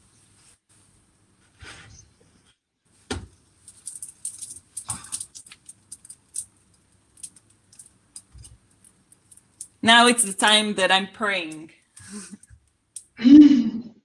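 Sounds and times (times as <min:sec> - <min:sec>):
thump: 0:03.1 - 0:03.3.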